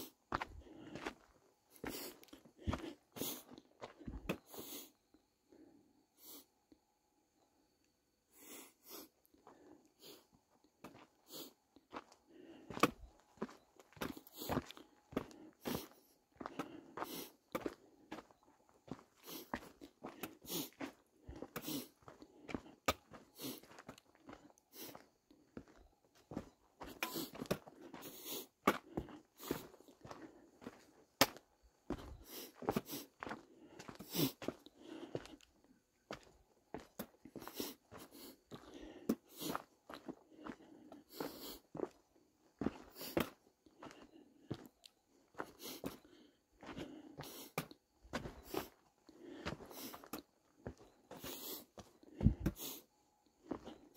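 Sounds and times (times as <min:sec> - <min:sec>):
footsteps crunching on rocky trail: 0:00.0 - 0:04.5, 0:10.4 - 0:53.9
person breathing: 0:00.0 - 0:06.7, 0:08.3 - 0:53.9.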